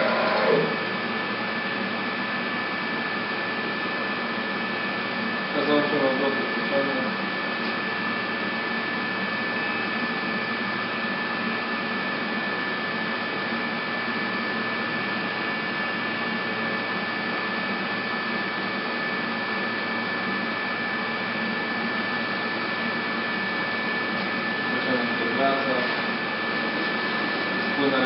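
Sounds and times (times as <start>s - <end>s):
milling machine running: 0.0s - 28.0s.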